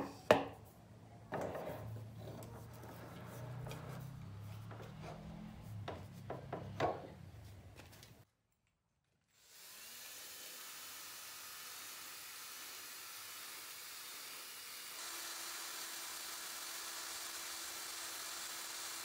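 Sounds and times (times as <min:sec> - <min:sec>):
plywood knocking on workbench: 0:00.0 - 0:00.6, 0:05.9 - 0:07.1
wood rubbing and scraping: 0:01.3 - 0:08.1.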